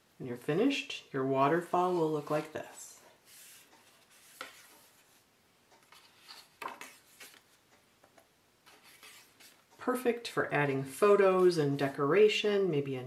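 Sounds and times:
cardstock flaps rustling: 0:05.8 - 0:07.6.

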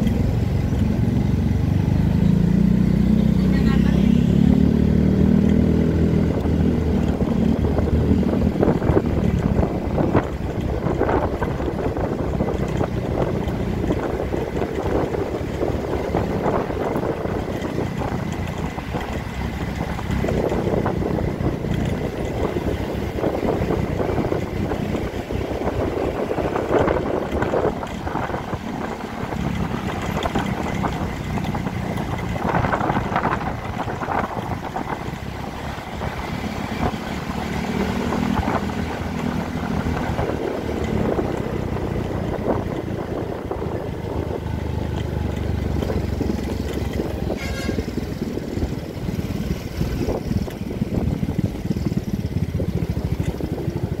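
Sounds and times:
scooter engine: 0:00.0 - 0:54.0
surrounding traffic noise: 0:00.0 - 0:54.0
wind rushing over microphone: 0:00.0 - 0:54.0.

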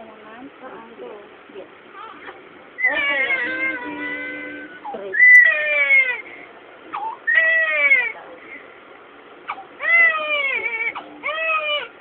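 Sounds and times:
baby crying hard: 0:02.8 - 0:06.2, 0:07.0 - 0:08.1, 0:09.8 - 0:11.9.

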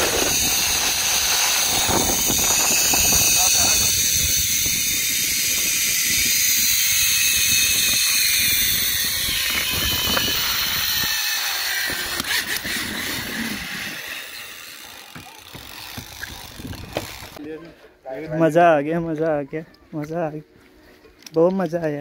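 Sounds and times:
wind rushing: 0:00.0 - 0:11.2
zip-line pulleys whining on cable: 0:00.0 - 0:17.4.

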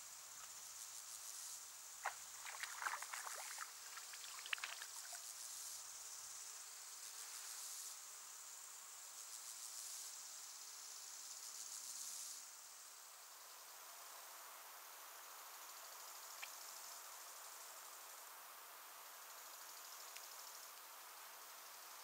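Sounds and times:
water splashes and drips: 0:02.0 - 0:05.3
insect trilling: 0:02.0 - 0:05.6.

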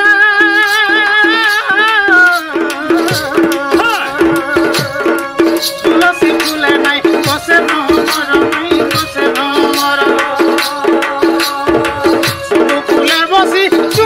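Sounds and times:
drum and rattle percussion: 0:00.0 - 0:14.0
folk music accompaniment: 0:00.0 - 0:14.0
men singing: 0:00.0 - 0:14.0.

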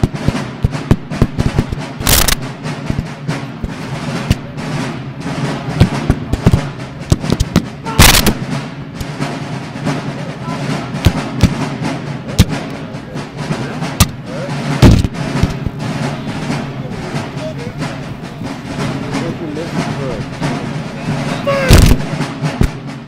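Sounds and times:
rifle shots cracking: 0:00.0 - 0:03.1, 0:05.4 - 0:09.1
loud gun blasts: 0:00.0 - 0:12.7, 0:13.8 - 0:23.0.

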